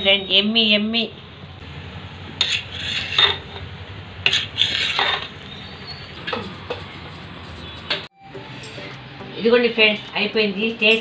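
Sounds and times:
metal spoon scraping a pot: 2.4 - 3.6, 4.2 - 8.9.

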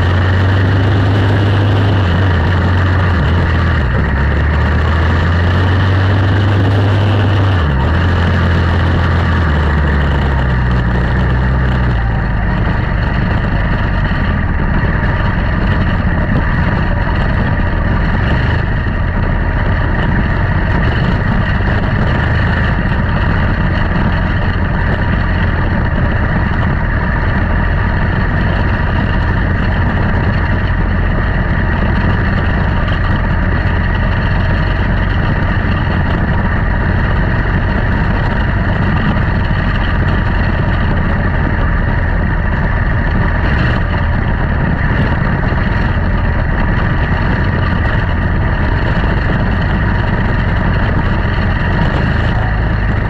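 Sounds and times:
race car engines droning: 0.0 - 53.0.

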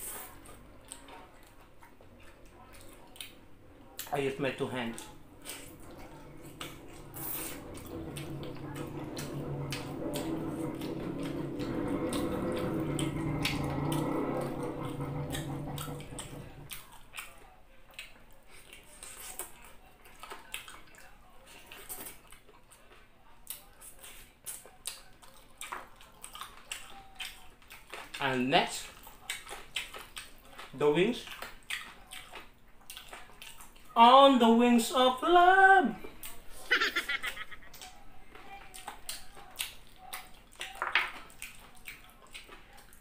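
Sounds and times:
person chewing with mouth clicks: 0.0 - 4.2, 16.7 - 28.2, 28.8 - 34.0, 38.6 - 43.0.

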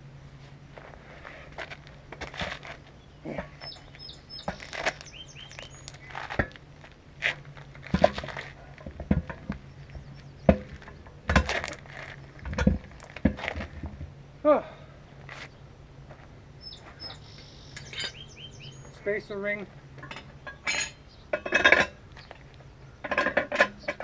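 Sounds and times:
bird chirping: 3.0 - 6.2, 9.5 - 11.0, 16.6 - 19.2, 20.4 - 21.4
truck tire knocks and thuds: 7.2 - 14.1.

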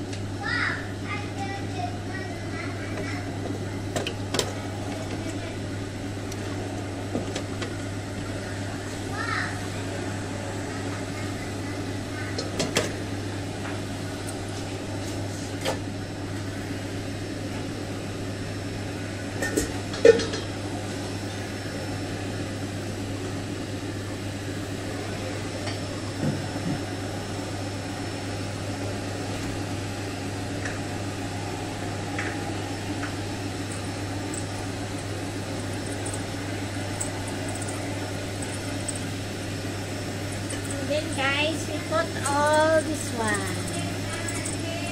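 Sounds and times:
low kitchen hum: 0.0 - 44.9.

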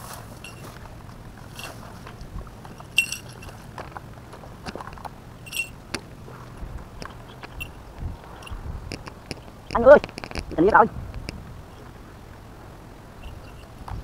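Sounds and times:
scuffs and scrapes on concrete wall: 0.0 - 4.8
sharp metallic clinks: 0.4 - 0.7, 2.8 - 3.6, 5.4 - 5.8, 7.5 - 7.8.

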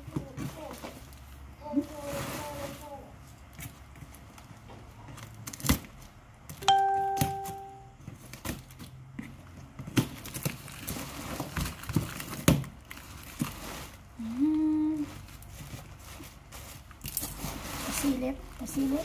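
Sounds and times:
packing tape tearing: 5.2 - 6.1, 9.9 - 14.2, 15.2 - 18.2
steady pitched tone: 6.6 - 7.9.

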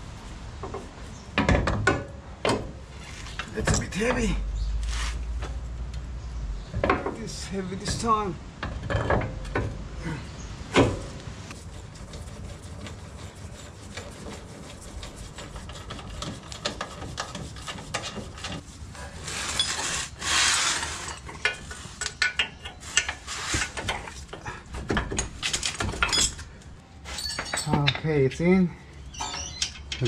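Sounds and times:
metal rubbing and scraping: 10.9 - 28.0.

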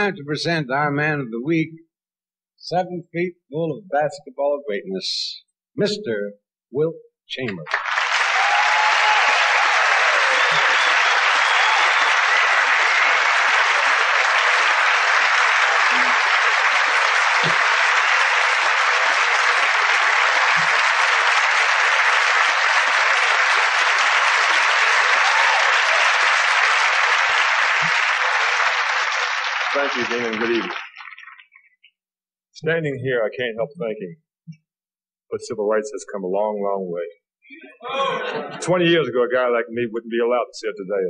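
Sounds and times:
audience applauding: 7.5 - 31.9.

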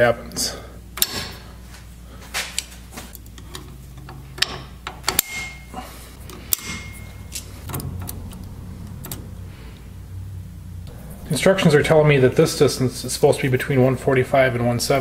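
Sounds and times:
short high metal ring: 5.2 - 5.7, 6.5 - 7.7.

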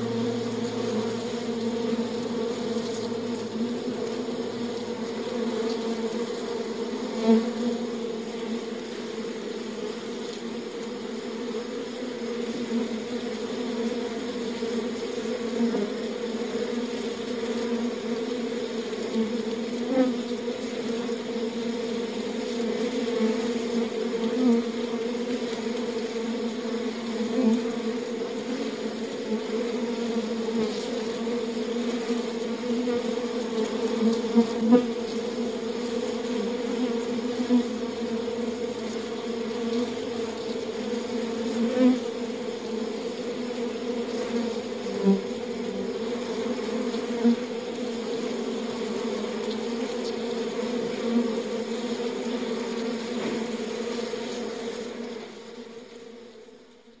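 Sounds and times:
dense buzz of many bees: 0.0 - 57.0
single bee buzzing close: 0.0 - 57.0.

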